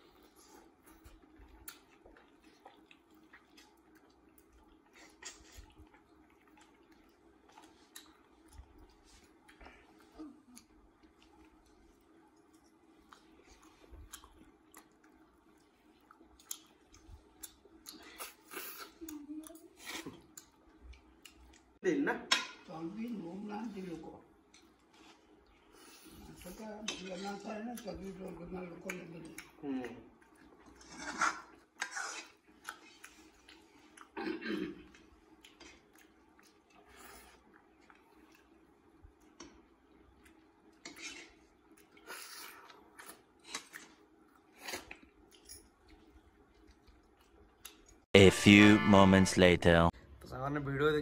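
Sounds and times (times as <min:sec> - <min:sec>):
person chewing: 0:00.0 - 0:19.2, 0:30.2 - 0:34.2, 0:34.9 - 0:38.6
person murmuring: 0:48.2 - 0:49.9.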